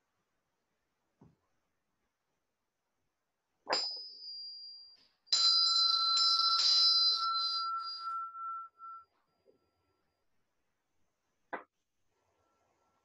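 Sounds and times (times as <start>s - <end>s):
small bell ringing: 3.7s - 10.2s.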